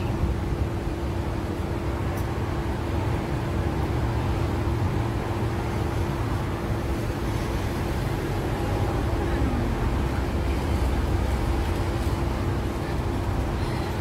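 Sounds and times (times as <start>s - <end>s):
street traffic rumble: 0.0s - 14.0s.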